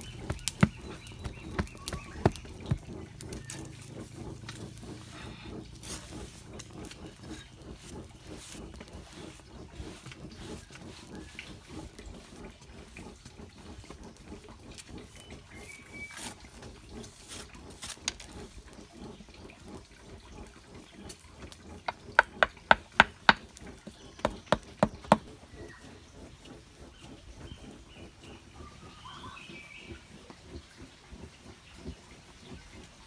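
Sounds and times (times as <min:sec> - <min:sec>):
sharp taps: 0:00.0 - 0:03.4, 0:21.9 - 0:23.4, 0:24.2 - 0:25.3
hands rubbing damp sand: 0:00.0 - 0:16.4, 0:21.9 - 0:25.3.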